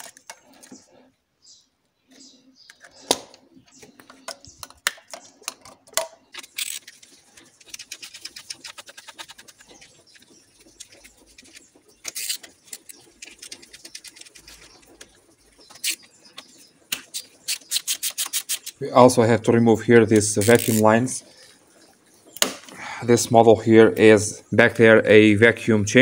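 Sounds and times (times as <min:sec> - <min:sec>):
hand ratchet clicking: 0:20.4 - 0:20.8.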